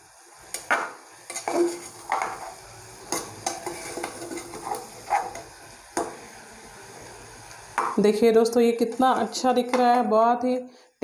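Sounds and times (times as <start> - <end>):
faint sizzling: 0.0 - 10.9
metal spatula scraping saucepan: 1.2 - 5.5.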